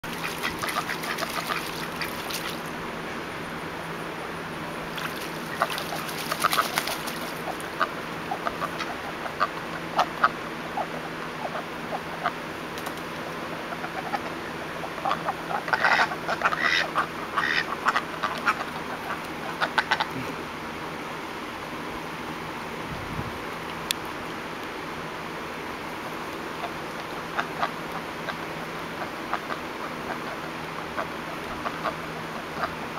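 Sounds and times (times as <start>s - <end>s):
ducks quacking: 0.0s - 2.7s, 5.0s - 12.4s, 13.5s - 20.4s, 26.5s - 32.9s.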